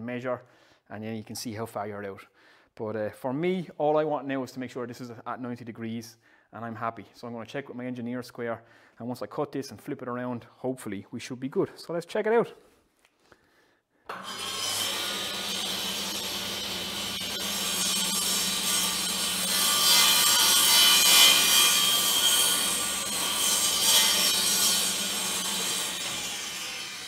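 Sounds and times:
table saw cutting board: 14.1s - 27.0s.

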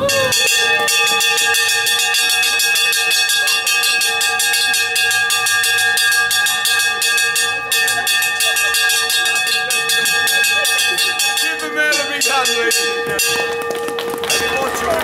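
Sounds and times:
small brass bell clanging: 0.0s - 15.0s.

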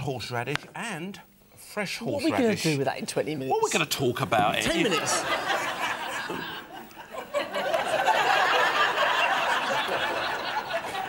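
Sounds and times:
studio audience laughing: 4.7s - 11.0s.

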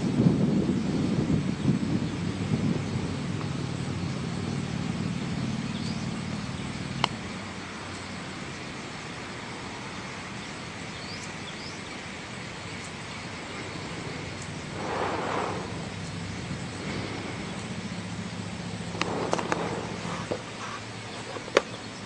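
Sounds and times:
outdoor wind: 0.0s - 22.0s
low hum: 12.4s - 21.2s.

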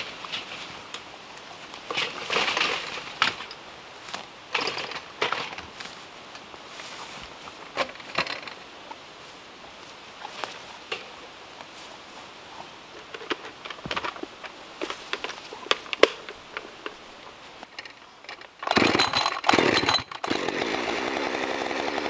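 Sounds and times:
rustling through grass: 0.0s - 4.7s, 5.5s - 18.2s
gear knocks and clunks: 17.7s - 20.4s.

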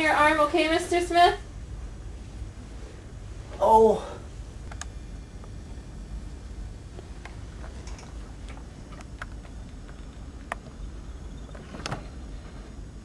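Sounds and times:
low steady rumble: 0.0s - 13.0s
light clicks and ticks: 4.6s - 5.6s.

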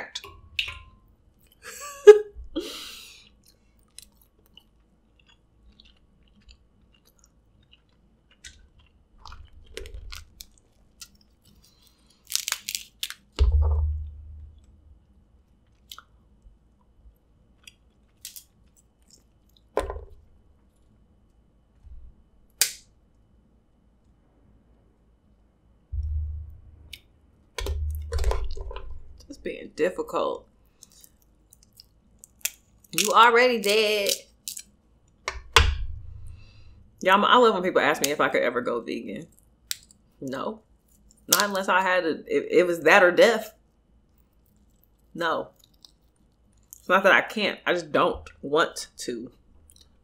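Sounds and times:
close-up chewing: 3.2s - 13.2s, 44.1s - 46.9s
crab shells cracking: 3.3s - 14.8s, 17.6s - 20.2s, 30.7s - 35.6s, 39.3s - 40.1s, 44.4s - 46.9s.

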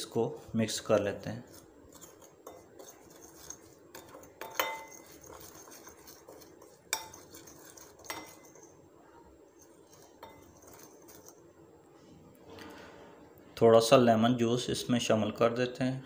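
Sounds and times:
spoon scraping glass bowl: 0.9s - 8.8s, 9.5s - 11.5s
spoon clinking ringing glass: 4.4s - 5.3s.

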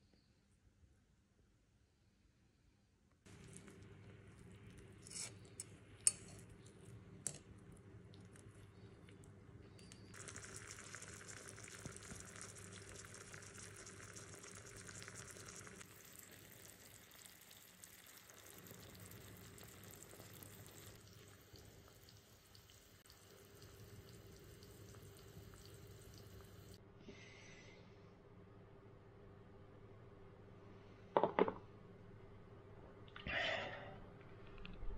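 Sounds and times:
vegetables sizzling in oil: 10.1s - 18.6s.

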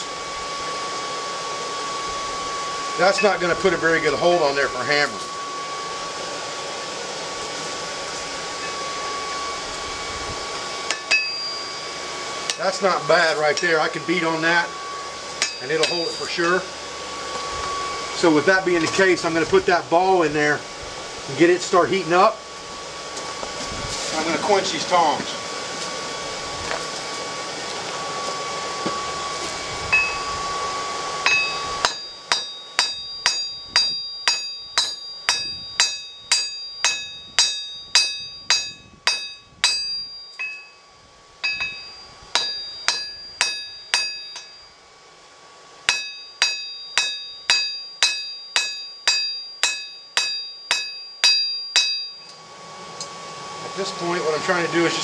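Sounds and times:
hammer ringing on anvil: 3.1s - 3.5s, 10.9s - 11.9s, 15.4s - 16.6s, 30.0s - 30.3s, 31.2s - 40.8s, 41.4s - 44.7s, 45.9s - 52.4s.

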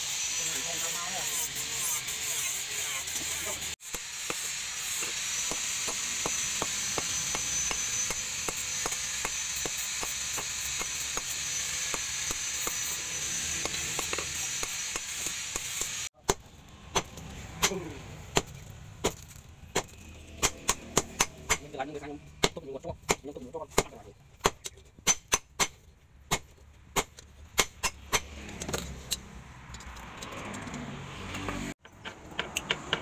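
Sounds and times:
hammer striking steel: 3.2s - 29.2s.

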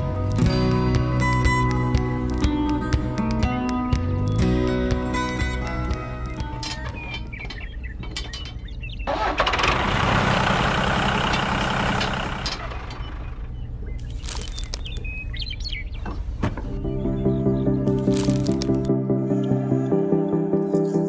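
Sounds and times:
bird chirps: 6.3s - 9.1s, 12.9s - 19.5s
handling clicks: 18.0s - 18.9s.

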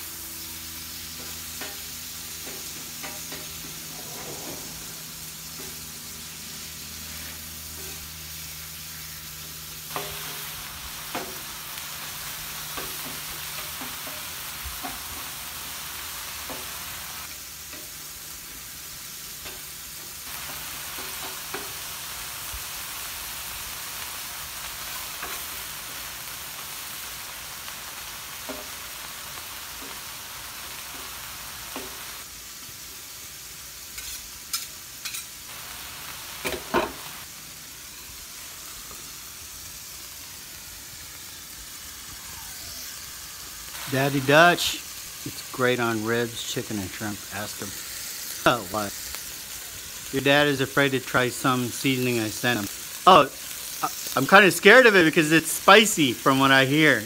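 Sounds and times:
ground beef sizzling on griddle: 0.0s - 57.0s
metal spatulas clicking on griddle: 34.0s - 35.3s.

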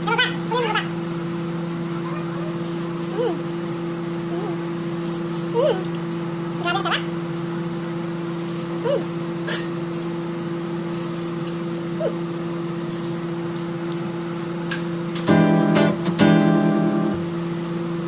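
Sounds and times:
electrical appliance hum: 0.0s - 18.0s
short vocal sounds: 2.1s - 3.5s, 5.5s - 5.9s
strummed acoustic guitar music: 15.2s - 17.3s.

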